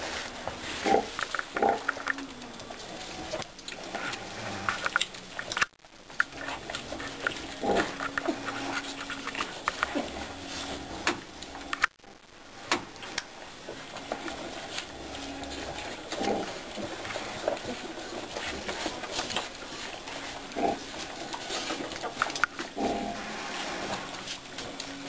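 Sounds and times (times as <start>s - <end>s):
sow grunting: 3.8s - 4.9s, 6.8s - 8.9s, 14.9s - 18.3s, 22.6s - 24.2s.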